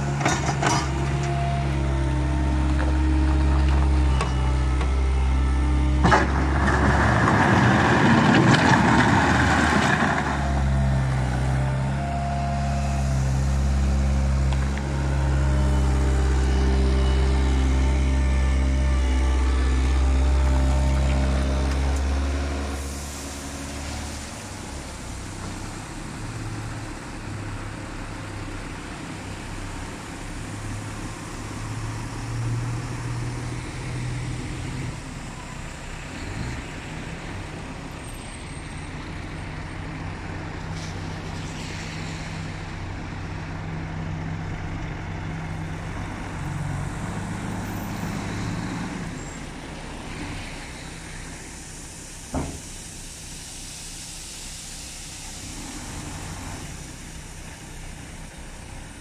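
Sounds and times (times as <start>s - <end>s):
diesel engines running: 0.0s - 59.0s
rattling gravel: 6.0s - 10.6s.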